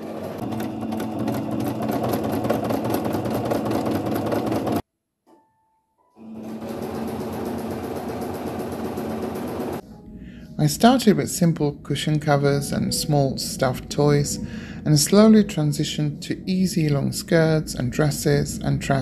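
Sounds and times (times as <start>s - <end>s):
sewing machine stitching: 0.0s - 4.8s, 6.2s - 9.8s.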